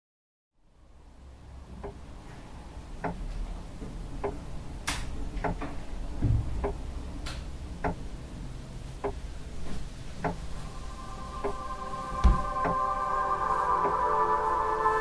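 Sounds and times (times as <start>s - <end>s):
low steady hum: 0.7s - 15.0s
clock ticking: 1.8s - 2.0s, 3.0s - 4.5s, 5.4s - 5.7s, 6.6s - 6.8s, 7.7s - 8.2s, 8.9s - 10.6s, 11.3s - 12.9s
dull low thump: 6.2s - 6.7s, 12.2s - 12.5s.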